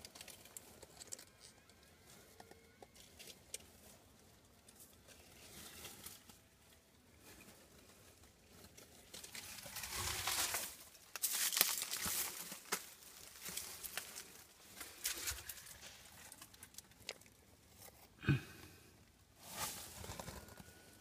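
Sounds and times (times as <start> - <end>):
wet leaves rustling: 9.3 - 16.0.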